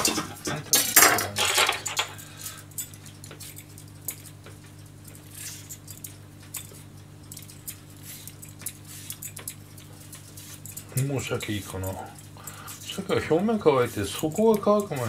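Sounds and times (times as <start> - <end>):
steady low hum: 0.0 - 15.0
vegetable peeler scraping radish: 3.4 - 15.0.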